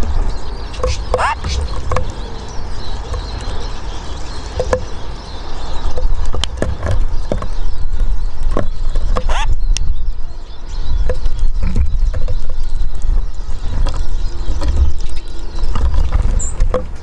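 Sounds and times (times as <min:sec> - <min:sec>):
bird ticks and clicks: 0:00.7 - 0:05.2, 0:05.8 - 0:09.9.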